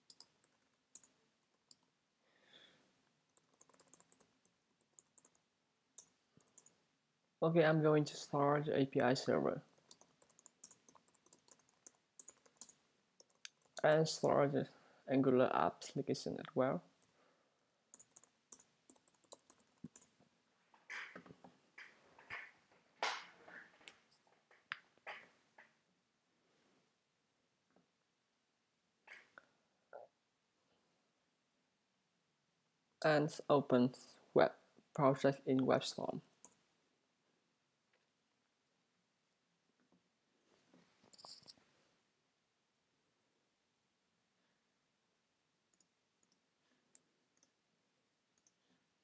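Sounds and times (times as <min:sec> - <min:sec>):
typing on a computer keyboard: 0:00.0 - 0:01.9, 0:03.3 - 0:05.4, 0:06.0 - 0:06.8, 0:09.8 - 0:14.0, 0:17.9 - 0:20.1.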